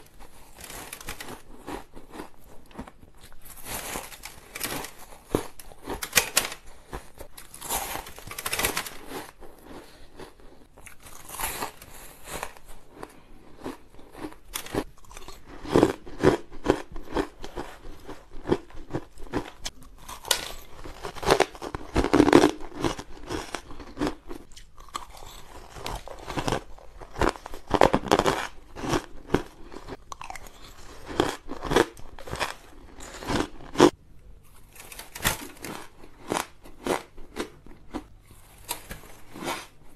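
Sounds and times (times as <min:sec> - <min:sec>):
ice being chewed: 0:06.8 - 0:34.9.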